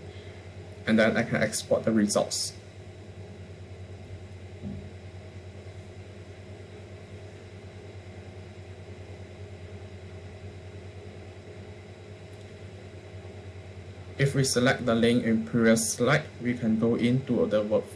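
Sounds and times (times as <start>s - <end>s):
steady low hum: 0.0s - 17.9s
soft low bump: 4.5s - 5.2s.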